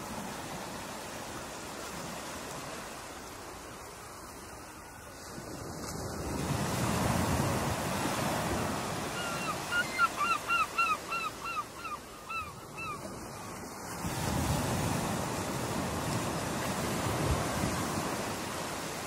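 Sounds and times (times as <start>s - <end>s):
waves breaking and washing: 0.0s - 19.0s
bird calling rapidly: 9.1s - 13.0s.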